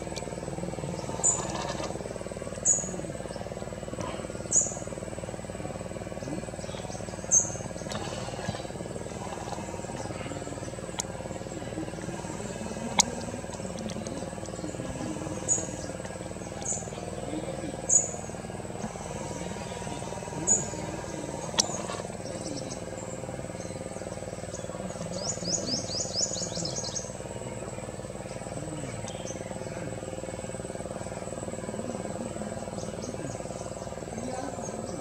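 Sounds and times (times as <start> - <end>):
high insect whine: 0.0 - 35.0
sharp clicks: 7.6 - 11.2.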